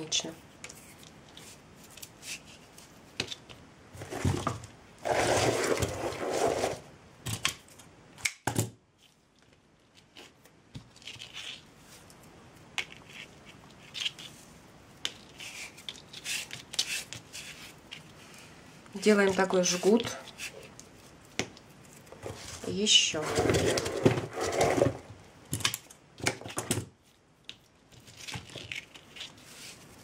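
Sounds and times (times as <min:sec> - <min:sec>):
craft materials rustling and crinkling: 0:00.2 - 0:07.9, 0:09.0 - 0:30.0
sharp clicks and snaps: 0:07.4 - 0:08.5.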